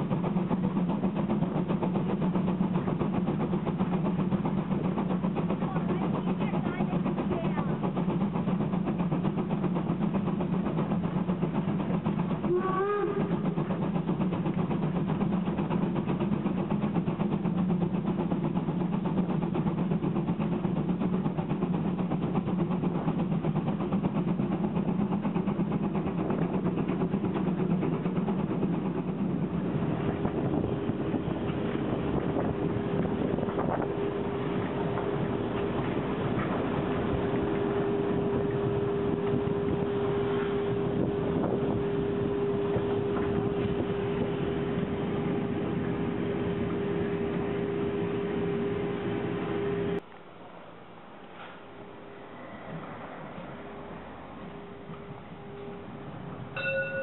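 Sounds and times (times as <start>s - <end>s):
train wheels rumbling: 0.0s - 57.0s
rising steam whistle: 12.4s - 13.5s, 37.0s - 50.0s
steady high tone: 56.6s - 57.0s.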